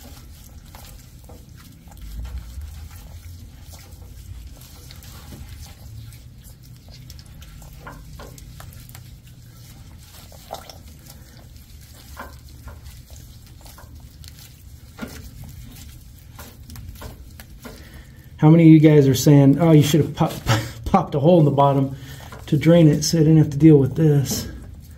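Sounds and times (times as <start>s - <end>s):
short scrapes and knocks: 0.0s - 18.4s
dripping oil: 0.0s - 24.9s
oil filter being unscrewed: 0.0s - 24.9s.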